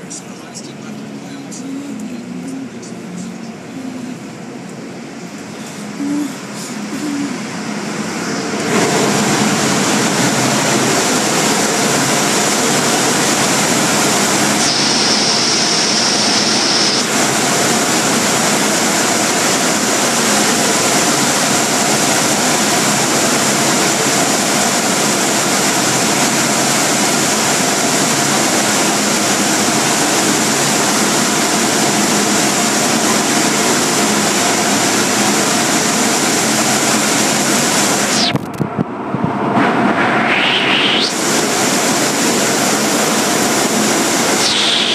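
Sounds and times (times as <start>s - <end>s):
car wash machinery roaring: 0.0s - 44.9s.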